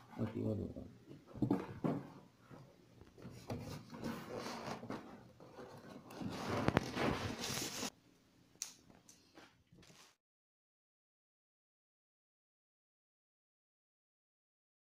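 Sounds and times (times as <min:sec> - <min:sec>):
cardboard and plastic wrap rustling: 0:03.1 - 0:07.9.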